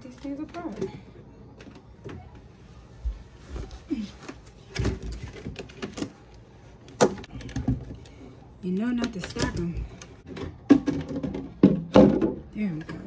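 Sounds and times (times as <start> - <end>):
containers knocking and scraping: 10.2 - 13.0.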